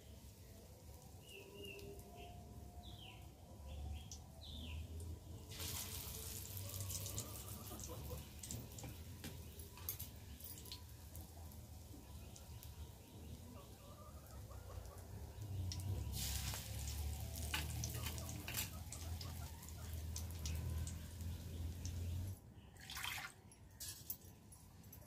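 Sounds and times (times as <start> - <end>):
fritters sizzling in hot oil: 4.9 - 13.4, 14.2 - 22.4.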